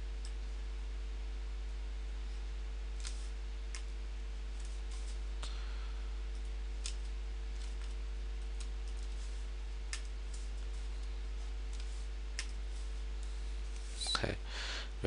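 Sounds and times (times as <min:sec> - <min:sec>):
steady low hum: 0:00.0 - 0:15.0
light keyboard clicks: 0:11.7 - 0:12.6.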